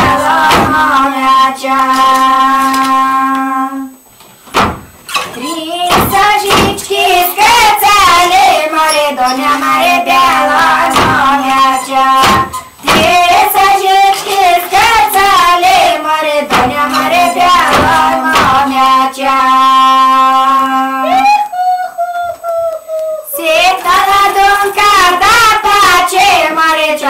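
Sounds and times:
women singing unaccompanied: 0.0s - 4.0s, 5.3s - 27.0s
handloom beater knocks: 16.5s - 18.7s.

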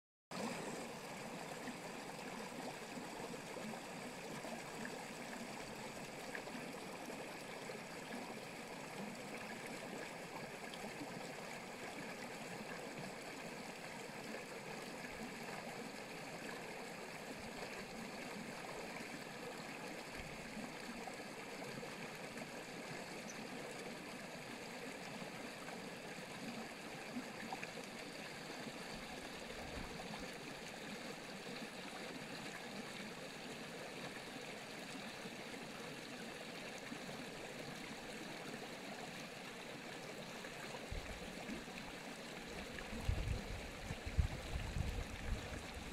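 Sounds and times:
stream flowing over stones: 0.3s - 45.9s.

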